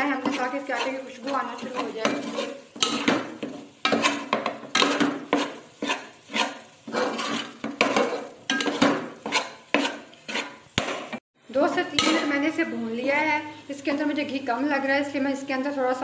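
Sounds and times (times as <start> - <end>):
spatula scraping metal pot: 0.0 - 11.2.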